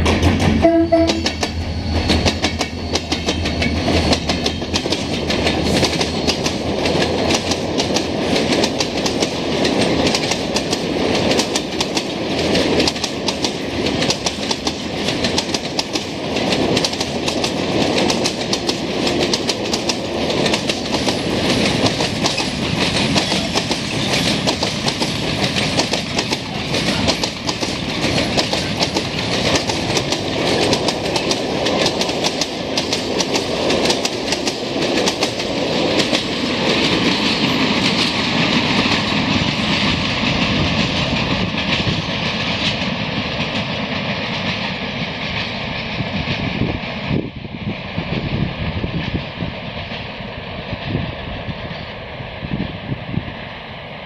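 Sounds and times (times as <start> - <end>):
train wheels clattering over rail joints: 0.0 - 47.0.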